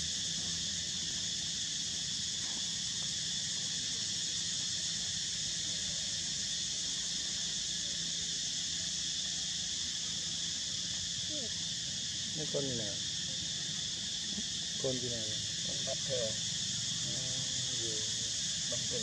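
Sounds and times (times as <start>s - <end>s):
insects shrilling: 0.0s - 19.0s.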